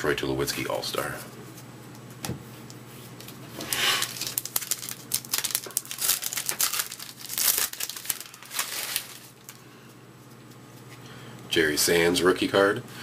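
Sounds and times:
card pack wrapper tearing and crinkling: 0:03.6 - 0:09.6.

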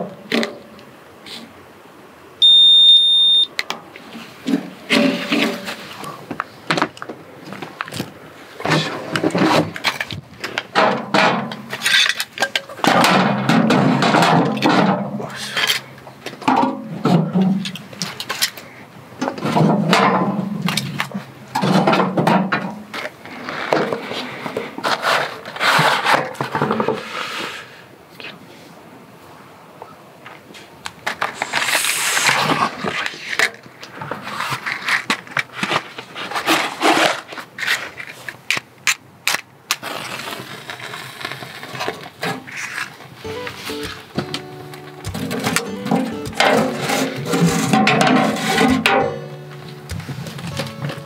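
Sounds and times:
wood sticks clattering in stove: 0:45.0 - 0:51.0.

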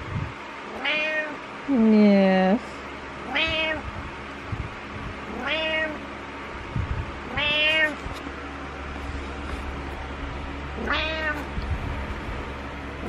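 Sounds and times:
cat meowing: 0:00.7 - 0:01.4, 0:03.3 - 0:03.9, 0:05.3 - 0:06.0, 0:07.3 - 0:08.0, 0:10.8 - 0:11.5.

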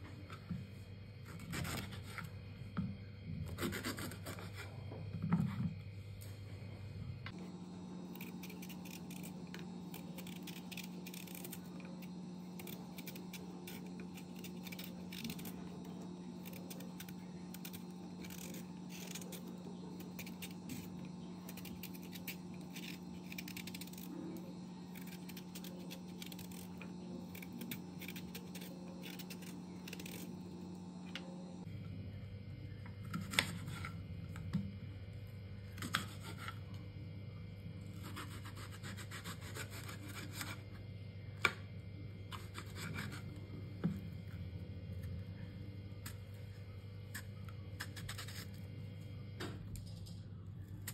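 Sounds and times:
knife scraping banana peel: 0:01.2 - 0:02.4, 0:03.4 - 0:05.7, 0:07.8 - 0:30.7, 0:35.8 - 0:36.6, 0:37.9 - 0:40.7, 0:42.3 - 0:44.0, 0:47.1 - 0:48.7.

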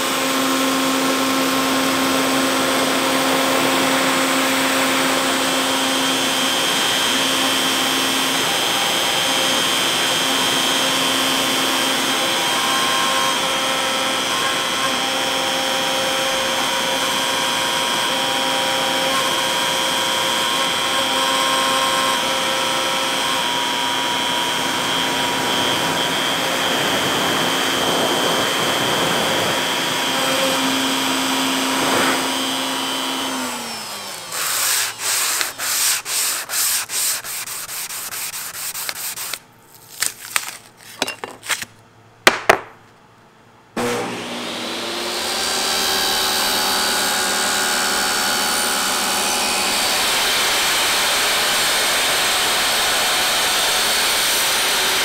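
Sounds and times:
router spindle whining: 0:00.0 - 0:39.4, 0:43.8 - 0:55.0
dust collection noise: 0:31.4 - 0:41.7.

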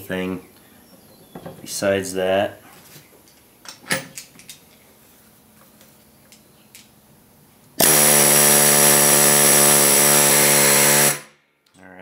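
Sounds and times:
pneumatic air hammer: 0:07.8 - 0:11.3.

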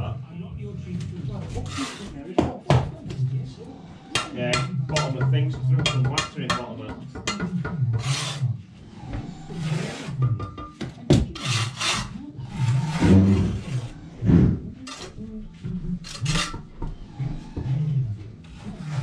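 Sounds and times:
trowels scraping mortar: 0:01.6 - 0:02.2, 0:08.0 - 0:08.4, 0:11.4 - 0:14.0, 0:14.8 - 0:15.2, 0:16.0 - 0:16.8, 0:18.5 - 0:19.0.

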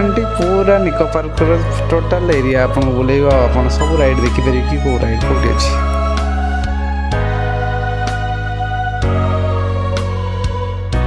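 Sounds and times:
held keyboard chords: 0:03.6 - 0:06.7.

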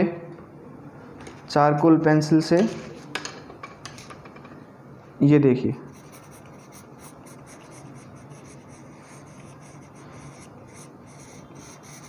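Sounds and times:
pencil scratching on paper: 0:05.9 - 0:12.0.

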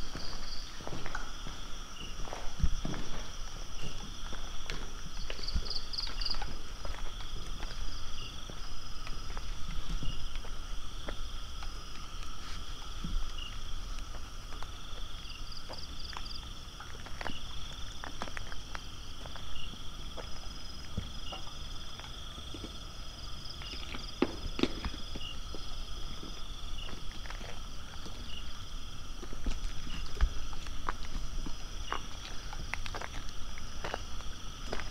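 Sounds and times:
footsteps on hard floor: 0:00.0 - 0:11.2
insects chirring: 0:00.0 - 0:34.9.

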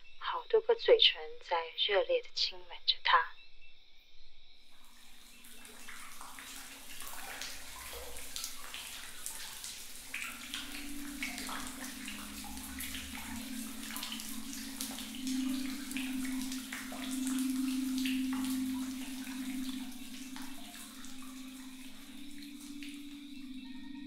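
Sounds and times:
steady low hum: 0:04.5 - 0:24.0.

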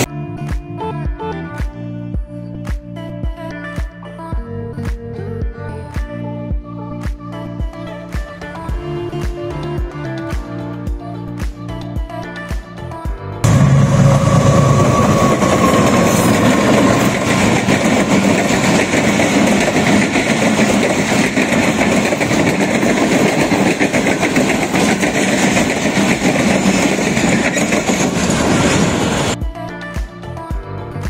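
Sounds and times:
diesel locomotive engine: 0:13.4 - 0:29.4
train wheels clattering over rail joints: 0:14.1 - 0:29.4.

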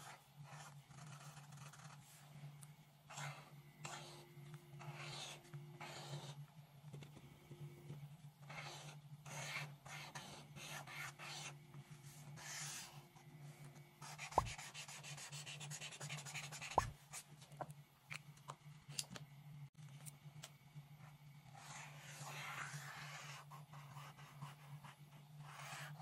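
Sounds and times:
marker scraping across paper: 0:00.0 - 0:02.3, 0:03.1 - 0:06.4, 0:08.5 - 0:13.0, 0:14.0 - 0:16.9, 0:21.6 - 0:26.0.

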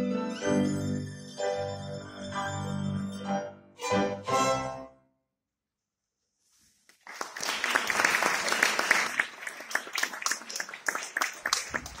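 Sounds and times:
audience applauding: 0:06.9 - 0:12.0.

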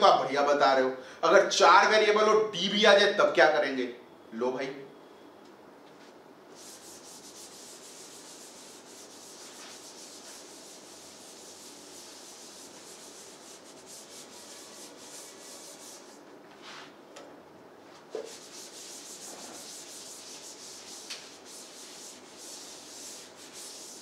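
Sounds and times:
duster rubbing on whiteboard: 0:06.5 - 0:17.0, 0:18.1 - 0:24.0.

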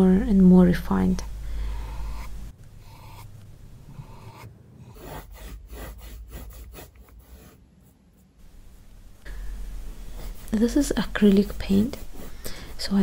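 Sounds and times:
paintbrush rasping on canvas: 0:01.7 - 0:08.4, 0:10.0 - 0:13.0.

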